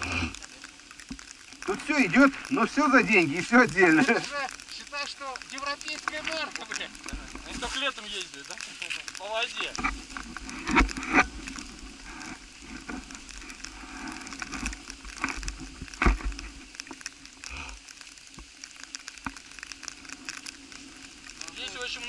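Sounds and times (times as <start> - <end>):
sharp thumps and rustles: 9.8 - 17.0.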